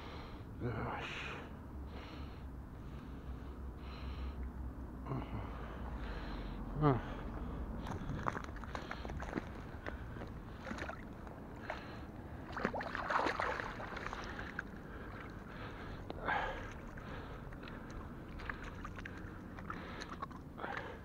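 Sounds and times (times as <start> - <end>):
fish splashing in shallow water: 7.8 - 21.0.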